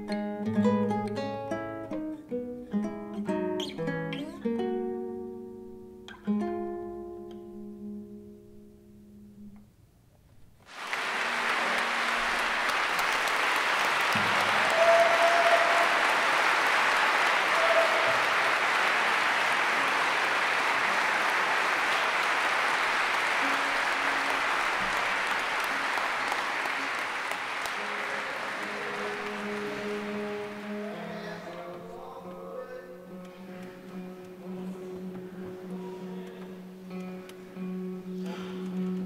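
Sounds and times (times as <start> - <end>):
guitar notes: 0.0 - 9.6, 27.7 - 39.0
audience applauding: 10.6 - 32.1.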